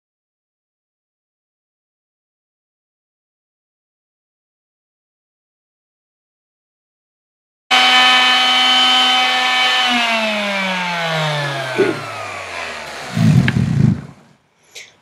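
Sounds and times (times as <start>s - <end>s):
electric sander winding down: 7.7s - 14.4s.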